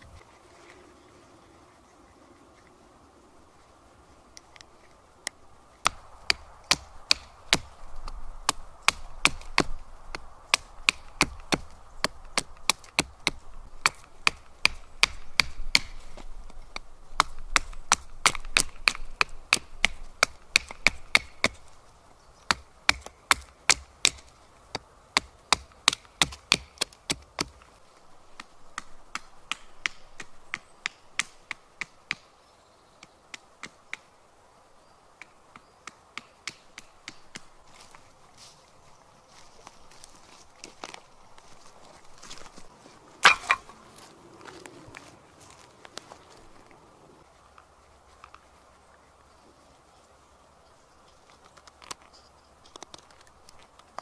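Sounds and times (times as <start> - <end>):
blade chopping into sapling: 43.2 - 43.8.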